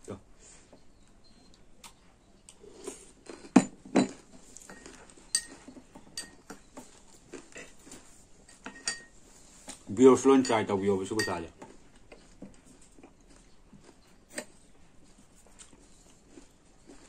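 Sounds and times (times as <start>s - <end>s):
chewing: 1.0s - 9.8s, 10.8s - 17.0s
metal spoon clinking on glass bowls: 3.6s - 6.9s, 8.5s - 9.2s, 10.2s - 11.6s.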